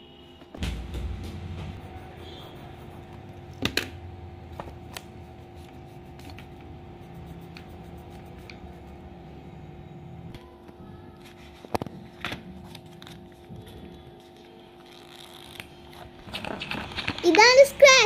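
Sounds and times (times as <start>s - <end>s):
paper handling: 11.2s - 17.5s.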